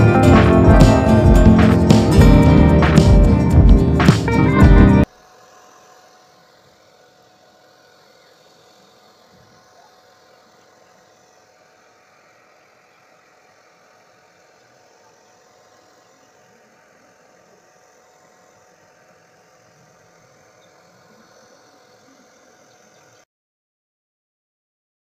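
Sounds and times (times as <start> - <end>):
thin constant tone: 5.0 - 23.2.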